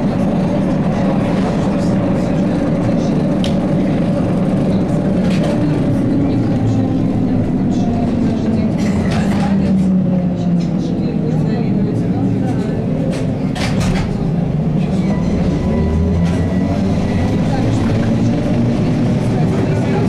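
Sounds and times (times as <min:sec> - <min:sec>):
trolleybus cabin drone: 0:00.0 - 0:20.0.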